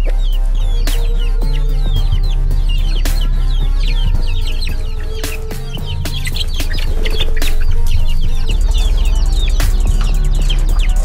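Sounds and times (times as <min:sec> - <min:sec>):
chicks peeping: 0:00.0 - 0:11.0
music with heavy bass: 0:00.0 - 0:11.0.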